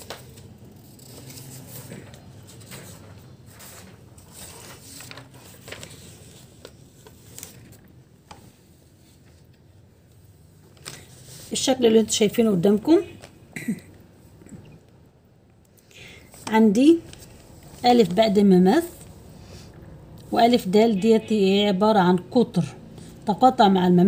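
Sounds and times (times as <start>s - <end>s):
paper rustling: 0.0s - 11.8s.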